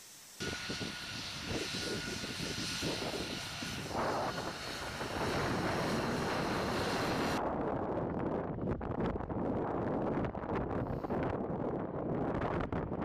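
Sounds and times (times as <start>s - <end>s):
jet engine running: 0.0s - 7.4s
wind buffeting microphone: 0.4s - 13.0s.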